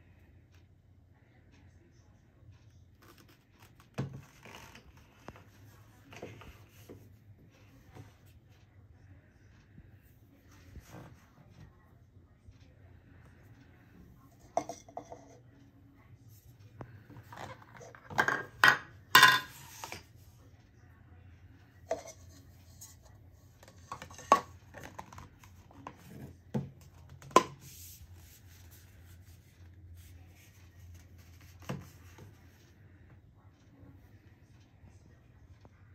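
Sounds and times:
plastic parts clacking and knocking: 0:23.6 - 0:27.9.

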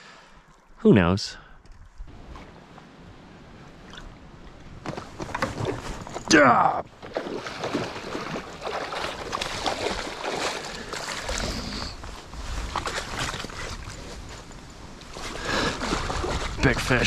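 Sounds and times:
fish splashing in water: 0:07.0 - 0:11.5
wind rumble on microphone: 0:11.7 - 0:17.0.

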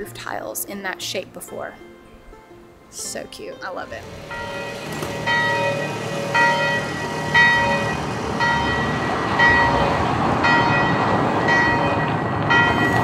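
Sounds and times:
church bell tolling: 0:04.0 - 0:13.0.

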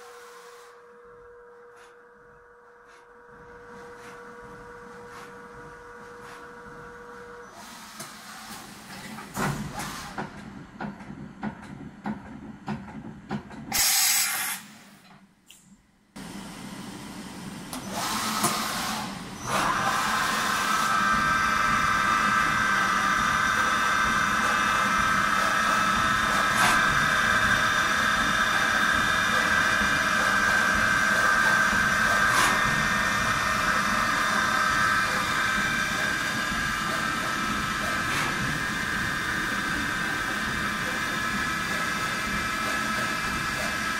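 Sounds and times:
short machine hiss: 0:13.7 - 0:15.0
machine spindle high whine: 0:16.2 - 0:43.9.

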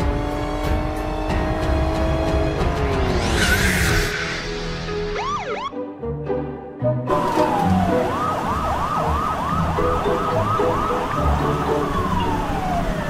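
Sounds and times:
police siren wailing and yelping: 0:05.2 - 0:05.7, 0:07.1 - 0:13.0.

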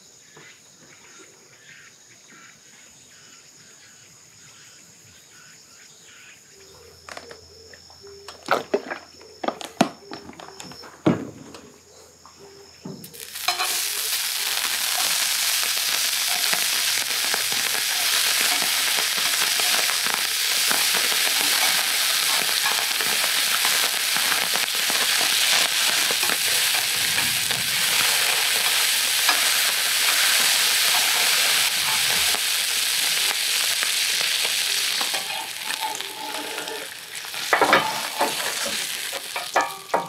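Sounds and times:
ham sizzling in a pan: 0:13.0 - 0:40.0.

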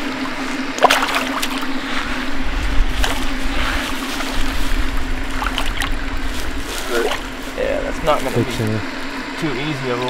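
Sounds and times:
low rumble: 0:00.0 - 0:09.3
steady low hum: 0:00.0 - 0:10.0
fish splashing at water surface: 0:00.1 - 0:01.8, 0:05.2 - 0:06.0.

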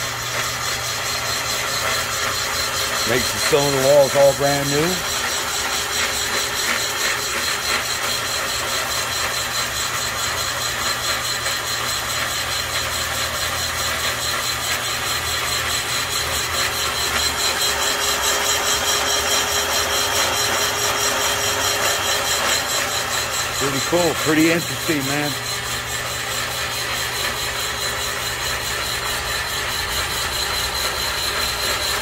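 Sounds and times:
boring bar machine drone: 0:00.0 - 0:32.0.

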